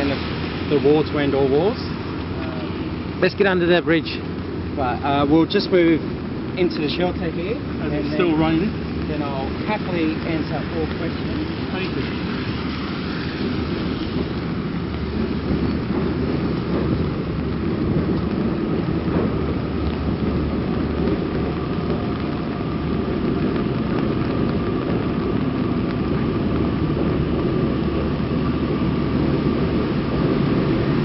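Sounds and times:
rain: 0.0s - 31.0s
traffic on a wet road: 0.0s - 31.0s.

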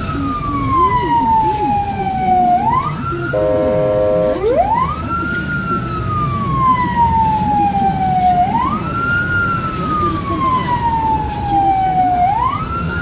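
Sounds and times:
ambulance siren wailing: 0.0s - 13.0s
van engine and tyres rumble: 0.0s - 13.0s
horn blast: 3.4s - 4.6s.

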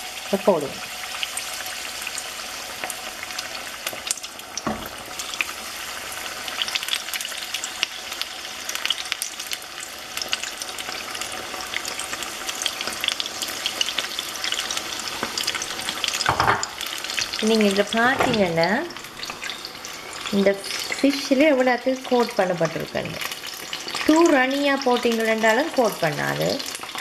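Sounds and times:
fish frying in hot oil: 0.0s - 27.0s.

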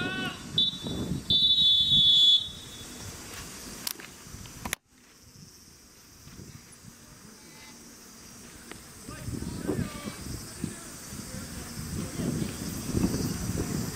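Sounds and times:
referee's whistle blast: 0.0s - 3.0s.

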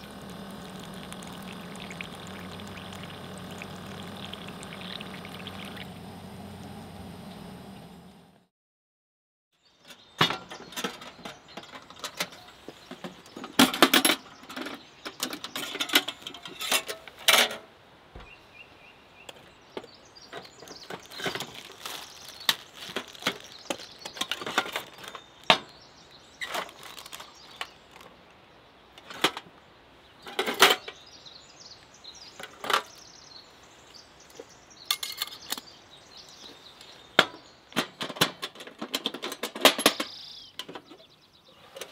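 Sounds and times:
metallic clinks of containers: 34.9s - 35.7s.

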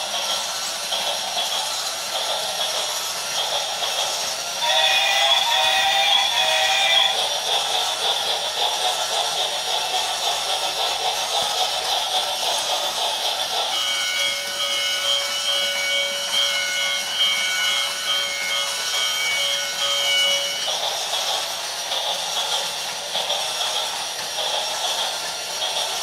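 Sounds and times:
toy train running on track: 0.0s - 26.0s.

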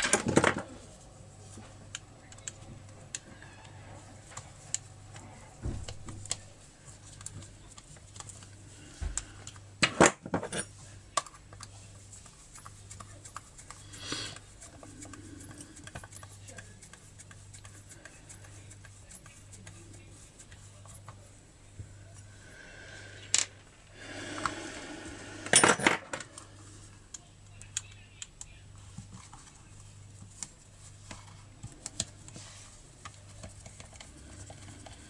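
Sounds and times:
parts rattling and clattering: 0.0s - 0.7s, 25.5s - 26.3s
metal parts clinking: 25.5s - 26.2s.

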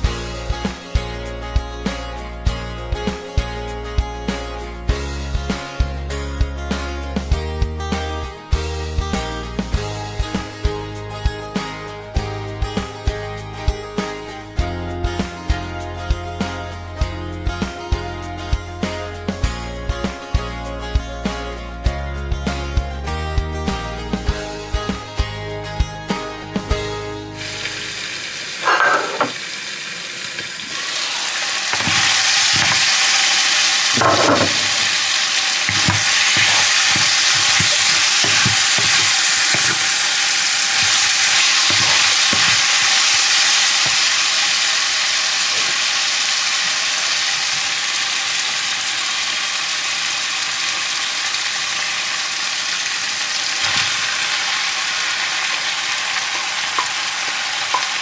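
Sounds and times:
meat sizzling in a wok: 27.3s - 58.0s
wooden spatula scraping a pan: 28.6s - 29.4s, 35.7s - 44.0s.

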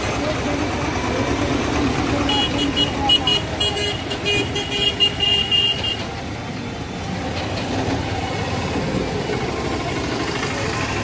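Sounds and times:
traffic rumble: 0.0s - 11.0s
vehicle horn: 2.2s - 6.1s.

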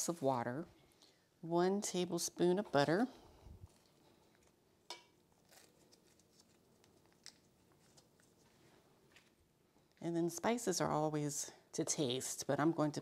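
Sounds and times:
butter wrapper rustling: 5.2s - 9.5s.

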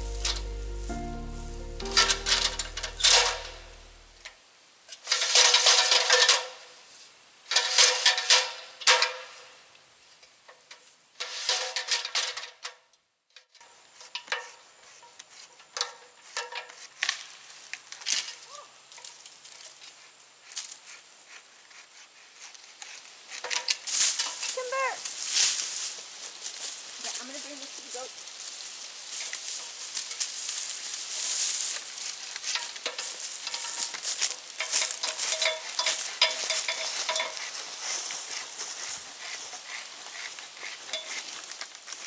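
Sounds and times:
background music: 0.0s - 4.2s
ladder rustling and scraping: 1.8s - 4.1s, 29.1s - 39.6s.

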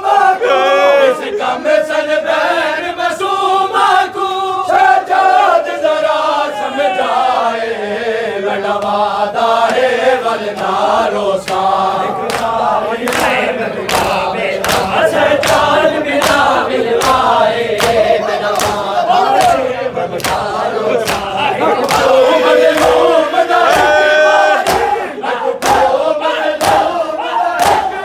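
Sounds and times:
men chanting a lament: 0.0s - 28.0s
chest-beating slaps: 11.4s - 19.6s, 20.2s - 22.1s, 24.6s - 25.0s, 25.6s - 26.0s, 26.6s - 27.0s, 27.6s - 28.0s.

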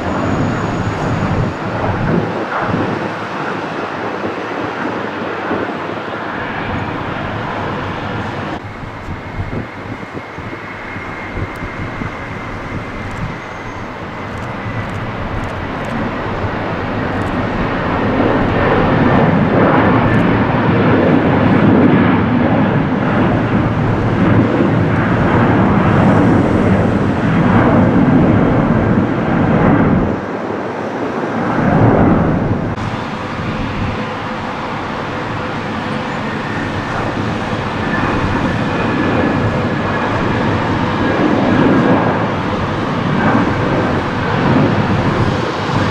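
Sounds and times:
airliner takeoff roar: 0.0s - 45.9s
jet engine whine: 0.0s - 45.9s
jet engines roaring at takeoff: 0.0s - 45.9s.

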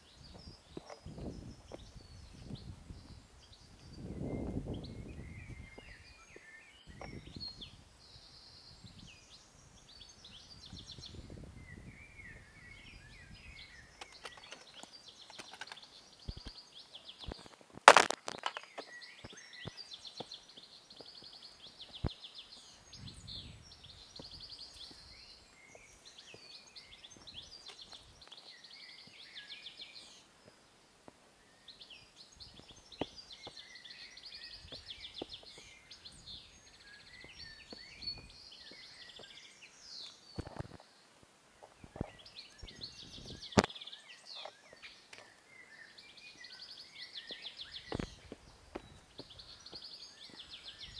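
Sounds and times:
songbirds singing: 0.0s - 50.9s
clicks and knocks on rock: 14.0s - 16.6s, 17.2s - 20.4s.

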